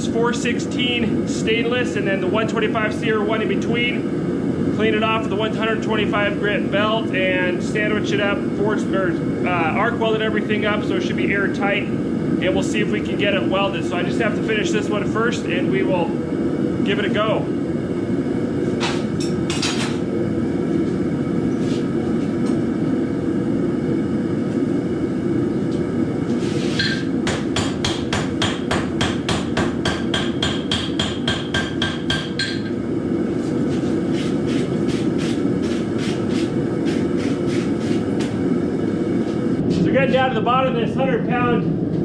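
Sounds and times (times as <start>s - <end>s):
forge burner hissing: 0.0s - 42.0s
hammer ringing on anvil: 26.8s - 32.8s.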